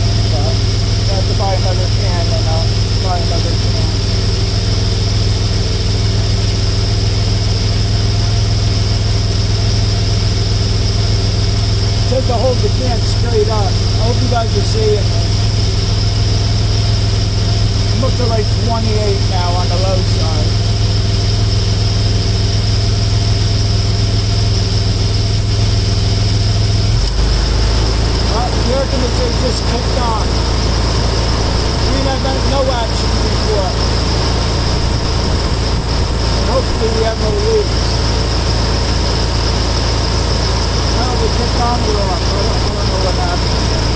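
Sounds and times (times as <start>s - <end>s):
car engine idling: 0.0s - 43.9s.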